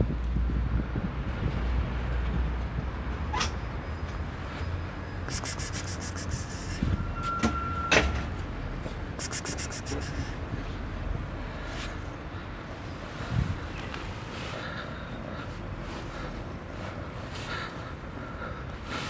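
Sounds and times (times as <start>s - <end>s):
wind rumbling on microphone: 0.0s - 3.4s, 10.0s - 14.3s
rapid high-pitched ticking: 5.3s - 6.8s, 9.2s - 10.3s.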